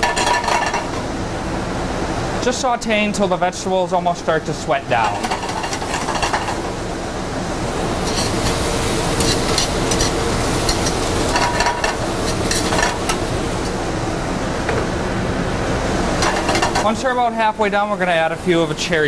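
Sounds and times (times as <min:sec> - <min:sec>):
vegetables sizzling in oil: 0:05.0 - 0:14.0, 0:15.8 - 0:17.0
spoon scraping a pan: 0:08.0 - 0:08.6, 0:09.2 - 0:13.2.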